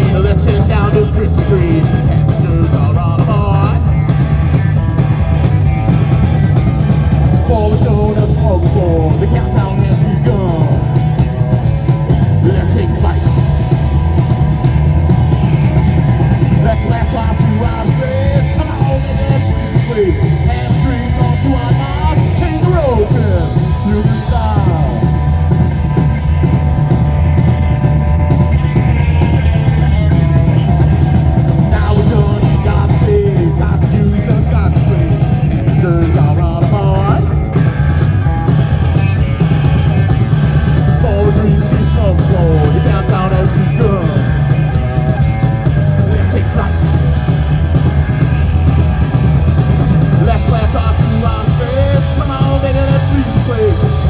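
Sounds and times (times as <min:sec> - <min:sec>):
metal band playing live: 0:00.0 - 0:54.0
sliding guitar pitches: 0:00.0 - 0:54.0.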